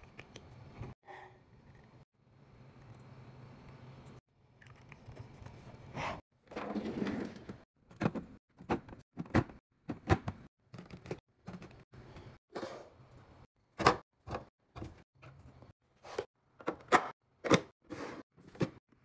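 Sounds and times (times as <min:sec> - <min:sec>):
refrigerator drawer sliding open: 0:06.5 - 0:07.6.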